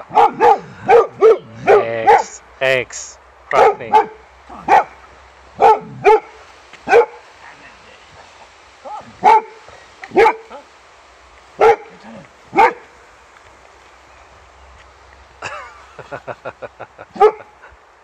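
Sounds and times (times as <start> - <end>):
dog barking: 0.0 - 2.4, 3.5 - 5.0, 5.6 - 7.2, 9.2 - 10.5, 11.6 - 12.9, 17.2 - 17.5.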